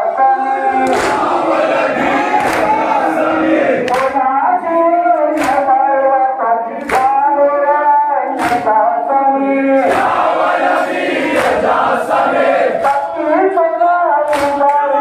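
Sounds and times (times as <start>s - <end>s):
man chanting into a microphone: 0.0s - 10.7s, 12.7s - 15.0s
crowd slapping chests: 0.7s - 6.0s, 6.7s - 7.4s, 8.2s - 9.0s, 9.6s - 13.5s, 14.2s - 15.0s.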